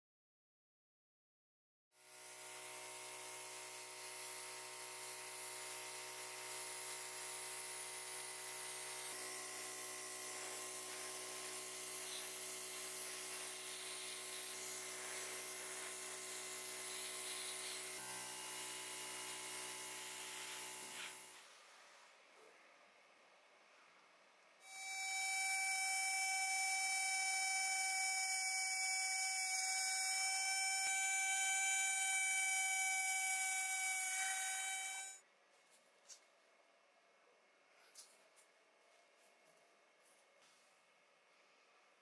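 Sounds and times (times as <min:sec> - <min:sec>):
compressor motor hum: 0:02.2 - 0:21.8, 0:24.7 - 0:35.2
airbrush air hiss: 0:12.0 - 0:12.4, 0:13.0 - 0:16.0.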